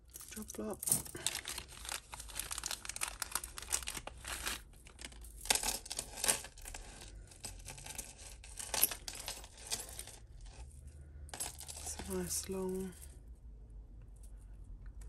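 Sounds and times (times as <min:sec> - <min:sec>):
plastic bag crinkling: 0:00.3 - 0:10.1.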